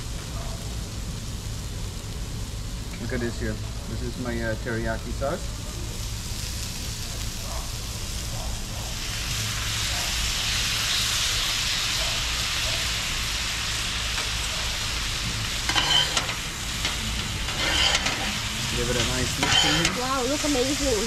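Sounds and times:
sauce sizzling on griddle: 0:00.0 - 0:21.0
metal spatulas scraping griddle: 0:15.5 - 0:20.0.

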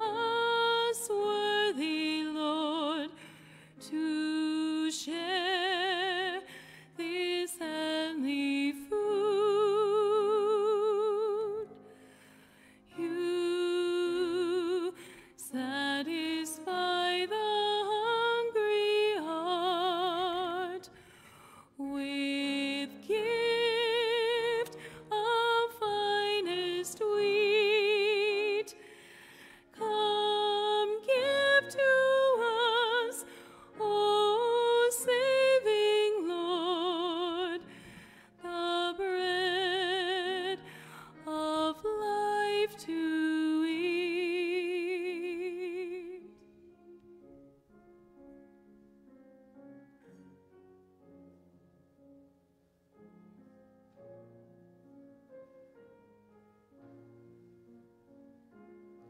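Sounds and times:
woman singing a slow hymn: 0:00.0 - 0:03.2, 0:03.8 - 0:11.8, 0:12.9 - 0:20.9, 0:21.7 - 0:28.8, 0:29.7 - 0:37.8, 0:38.4 - 0:46.2
soft piano accompaniment: 0:00.0 - 0:59.0.

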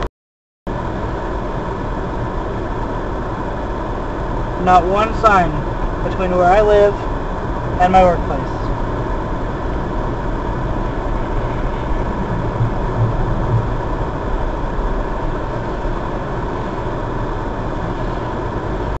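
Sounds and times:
car engine and tyre rumble: 0:00.7 - 0:19.0.

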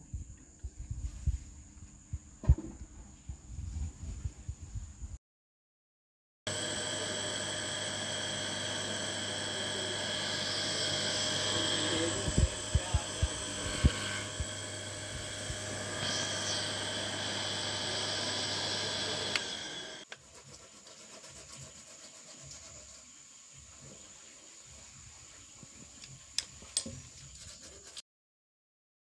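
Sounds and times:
small electric motor running: 0:06.5 - 0:20.1.

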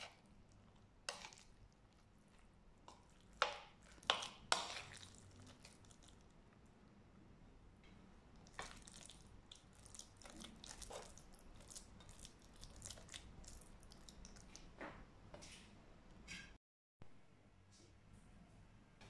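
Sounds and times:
wet squishing of mixed filling: 0:00.0 - 0:06.8, 0:08.3 - 0:14.8
utensils scraping bowl: 0:03.4 - 0:05.2.

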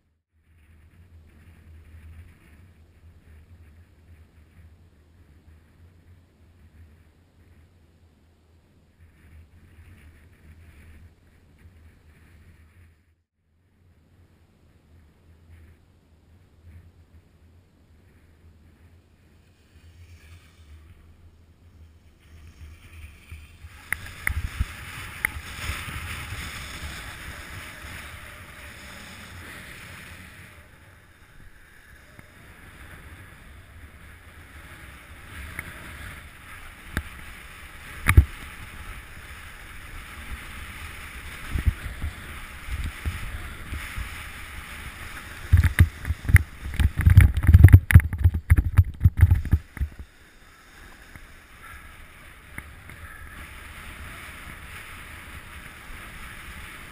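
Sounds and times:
wind buffeting microphone: 0:22.6 - 0:31.7, 0:32.4 - 0:50.1.

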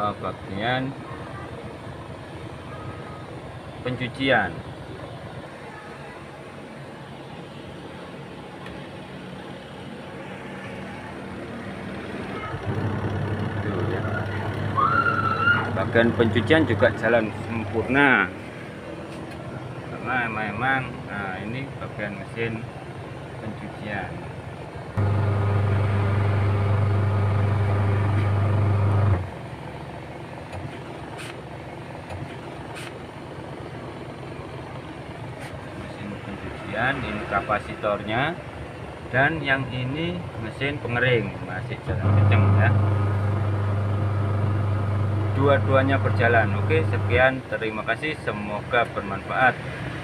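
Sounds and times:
spin-dryer motor humming: 0:12.5 - 0:17.8, 0:25.0 - 0:29.4, 0:41.8 - 0:47.2
washing motor low hum: 0:12.5 - 0:18.2, 0:25.0 - 0:35.8, 0:41.8 - 0:47.2
quieter steady running sound: 0:21.8 - 0:36.2, 0:41.8 - 0:47.6.

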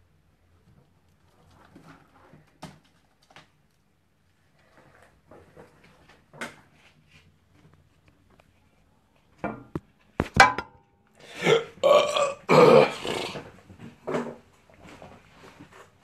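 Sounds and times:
sharp knocks: 0:10.2 - 0:10.8
man burping loudly: 0:11.3 - 0:13.5.

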